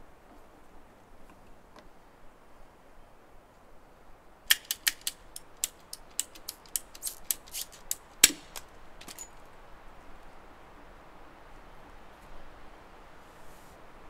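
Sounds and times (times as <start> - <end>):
ratcheting pipe cutter clicking: 4.5 - 9.3.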